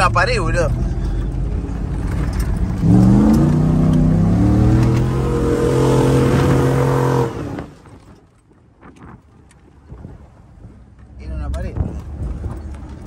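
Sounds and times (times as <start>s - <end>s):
truck engine revving hard: 2.7s - 7.8s.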